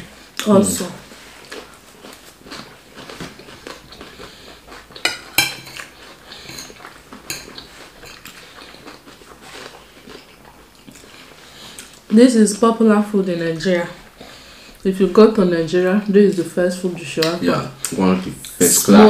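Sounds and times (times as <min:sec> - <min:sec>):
cutlery scraping and clinking on plates: 0:04.9 - 0:08.7.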